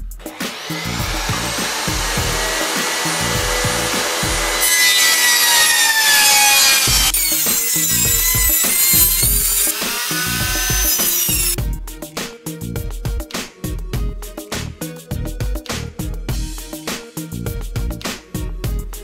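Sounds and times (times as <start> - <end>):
electric saw motor whine: 0.2 - 11.6
saw blade cutting wood: 0.2 - 11.6.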